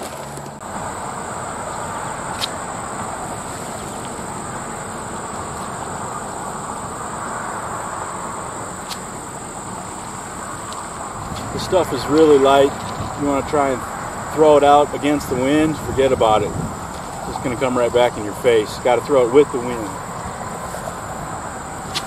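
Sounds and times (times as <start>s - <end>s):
insect trill: 0.0s - 22.0s
wind rushing: 0.7s - 17.8s.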